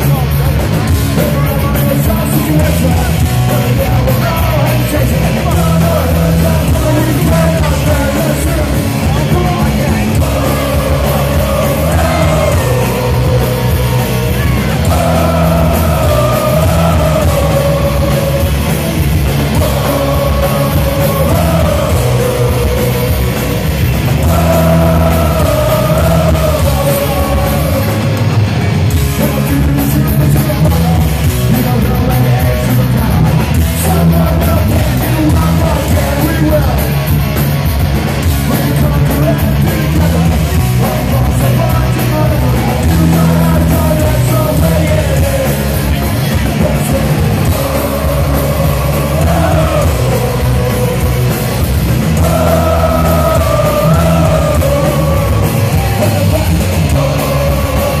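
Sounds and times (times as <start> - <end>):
punk rock band playing live: 0.0 - 58.0
person shouting singing: 3.6 - 18.8, 19.4 - 28.1, 52.1 - 58.0.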